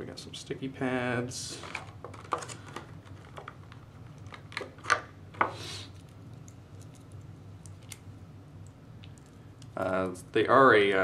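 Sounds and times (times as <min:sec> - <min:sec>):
plastic packaging crinkling: 0:01.6 - 0:05.0.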